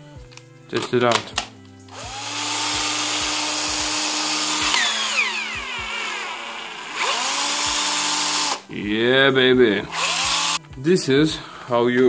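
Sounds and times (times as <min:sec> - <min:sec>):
cordless drill motor whining: 0:01.9 - 0:08.7, 0:09.9 - 0:10.6.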